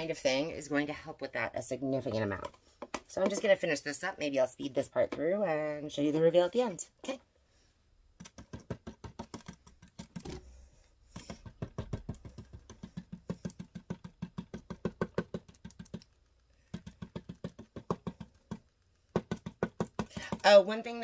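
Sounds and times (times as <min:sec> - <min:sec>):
paint dabbing taps on stencil: 0:16.7 - 0:20.4.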